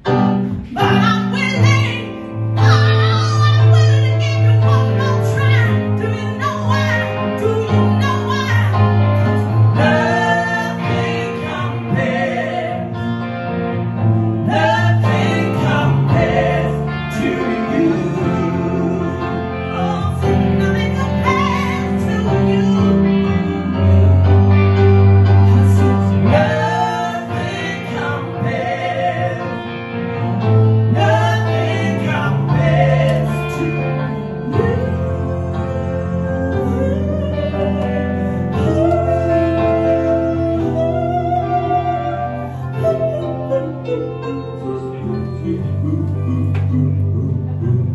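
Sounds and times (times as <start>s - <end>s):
keyboard chords: 0.0s - 47.9s
woman singing: 0.6s - 8.8s, 9.8s - 13.0s, 14.4s - 24.3s, 30.9s - 47.9s
man singing: 14.5s - 24.4s, 38.6s - 47.9s.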